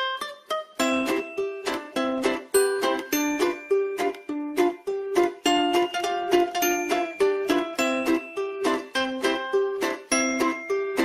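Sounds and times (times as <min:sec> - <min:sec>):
plucked string tune: 0:00.0 - 0:11.0.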